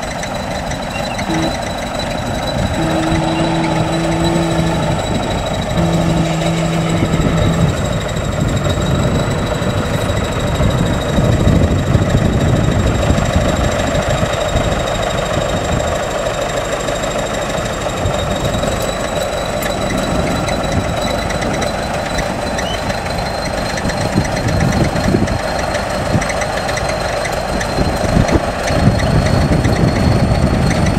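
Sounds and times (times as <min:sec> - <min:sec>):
bulldozer diesel engine rumble: 0:00.0 - 0:30.9
high whine: 0:00.0 - 0:30.9.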